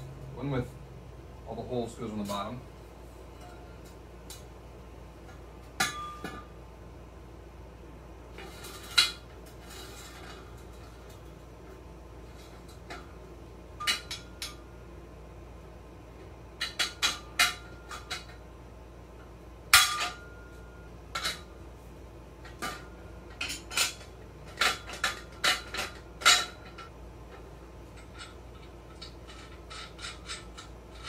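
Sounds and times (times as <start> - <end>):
steel tubes clinking and clanking: 5.8 - 6.5, 13.8 - 14.7, 19.7 - 21.5, 22.4 - 31.0.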